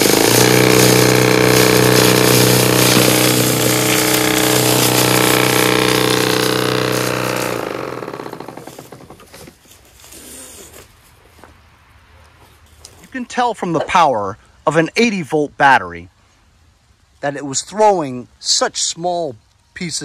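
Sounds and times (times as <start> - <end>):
snowblower running: 0.0 - 9.4
auger churning dry leaves: 0.0 - 11.1.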